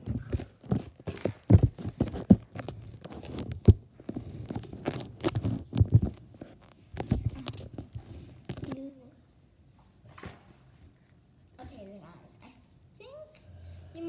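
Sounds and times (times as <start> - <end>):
microphone handling noise: 0.0 - 8.8.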